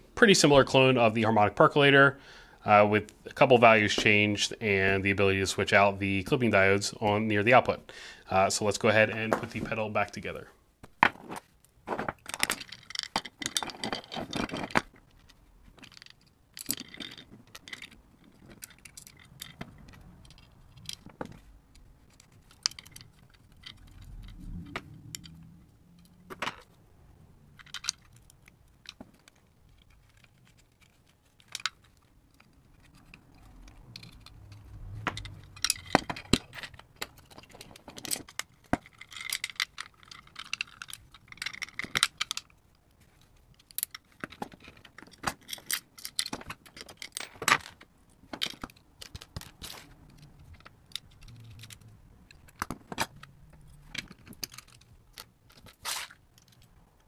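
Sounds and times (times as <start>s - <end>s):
scraping and rustling: 27.5s - 56.8s
clicks and taps of handling parts: 27.6s - 56.8s.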